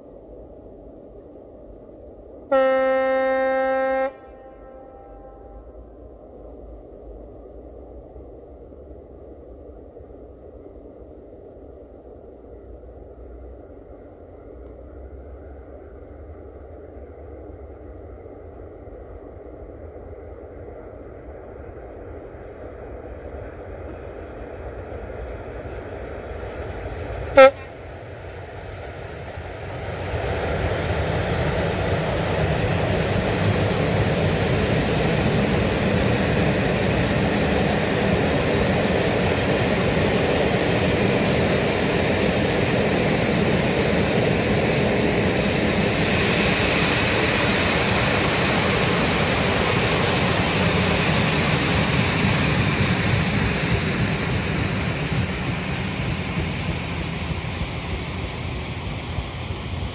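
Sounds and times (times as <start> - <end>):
locomotive horn toot: 2.5 - 5.7, 27.3 - 27.7.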